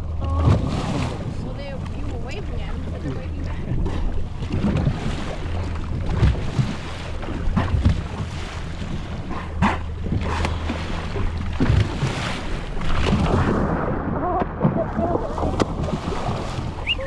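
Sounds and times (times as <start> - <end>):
boat engine hum: 0.0 - 17.0
water wash: 0.0 - 17.0
dolphins blowing: 13.4 - 17.0.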